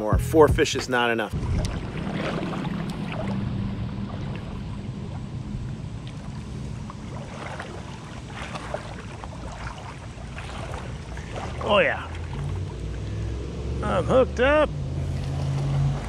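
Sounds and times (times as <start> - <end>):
low rumble: 0.0 - 8.6
fast river current rushing: 1.3 - 13.8.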